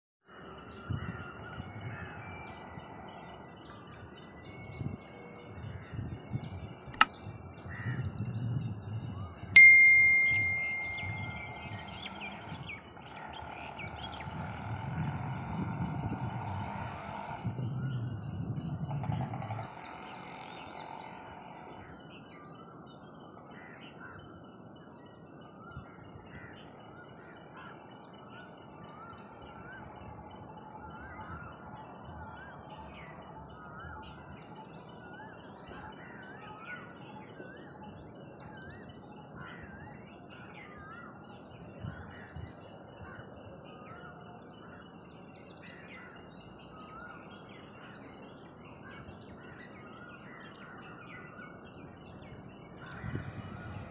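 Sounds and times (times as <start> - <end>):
bird repeating rising note: 9.6 - 12.2.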